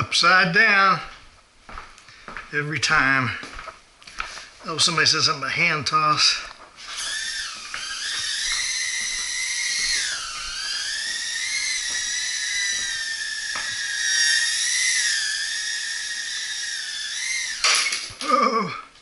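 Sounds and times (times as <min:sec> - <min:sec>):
quadcopter propellers whining: 0:06.2 - 0:18.7.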